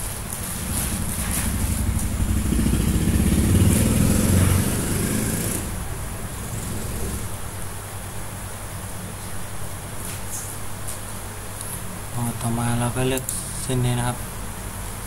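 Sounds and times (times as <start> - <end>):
vehicle engine passing by: 0.3 - 7.5.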